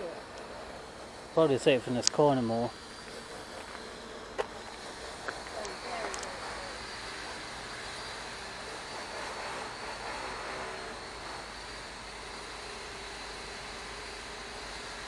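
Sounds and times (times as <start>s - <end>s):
distant vehicle rumble: 0.0s - 12.0s.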